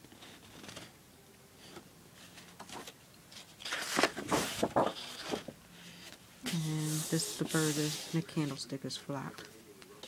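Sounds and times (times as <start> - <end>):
paper rustling and crinkling: 0.1 - 1.0, 1.6 - 8.5.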